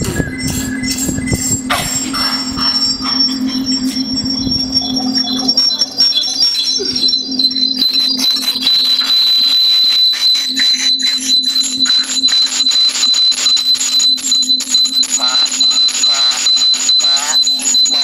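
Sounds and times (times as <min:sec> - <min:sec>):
low steady hum: 0:00.0 - 0:08.9
high-pitched tone: 0:00.0 - 0:18.0.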